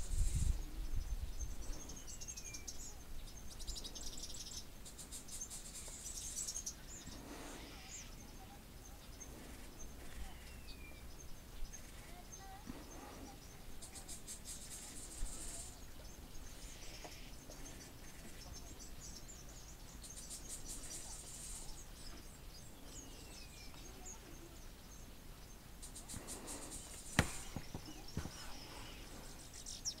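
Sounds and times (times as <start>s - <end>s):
birds chirping: 0.0s - 30.0s
sharp knock: 27.1s - 27.9s.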